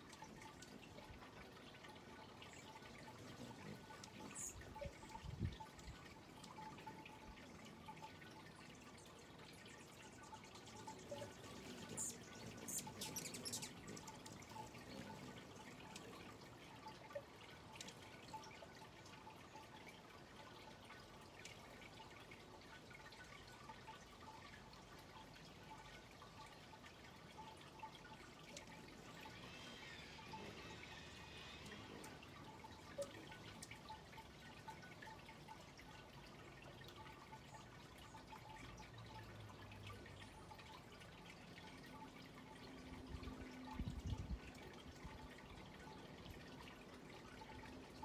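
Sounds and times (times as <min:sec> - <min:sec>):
faint bird twittering: 0:09.6 - 0:15.9.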